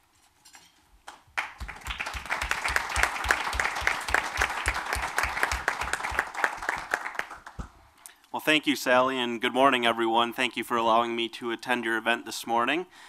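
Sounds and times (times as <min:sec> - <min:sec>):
audience applauding: 0:01.4 - 0:07.6.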